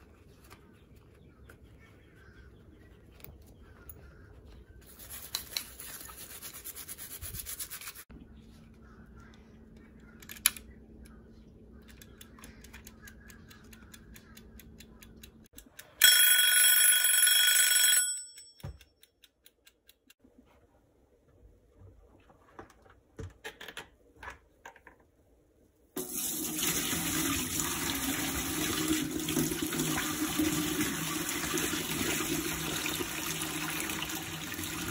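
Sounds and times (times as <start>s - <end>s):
kitchen timer ticking: 11.8s - 16.6s, 18.2s - 20.2s
timer bell ringing: 16.0s - 18.8s.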